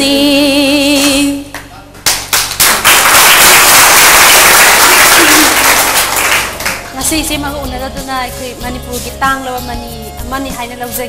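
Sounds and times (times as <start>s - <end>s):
woman singing with vibrato: 0.0s - 1.5s
people clapping: 1.5s - 7.0s.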